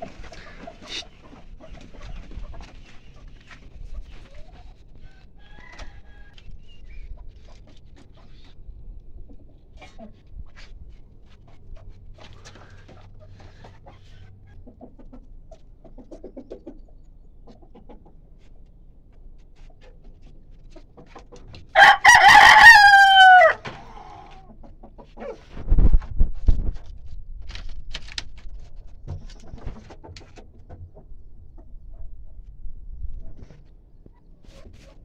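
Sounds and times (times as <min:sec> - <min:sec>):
hens clucking softly: 0:00.0 - 0:25.6, 0:28.7 - 0:35.0
rooster crowing: 0:05.4 - 0:06.4, 0:21.8 - 0:24.4.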